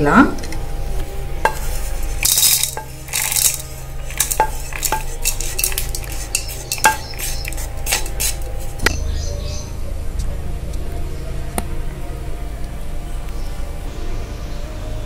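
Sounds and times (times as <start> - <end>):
spatula scraping pan: 1.4 - 8.8
spatula tapping: 1.4 - 8.8.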